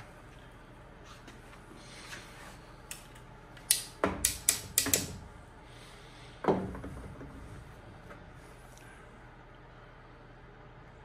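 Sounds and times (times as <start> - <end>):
work light clicking on bumper: 3.6 - 5.2.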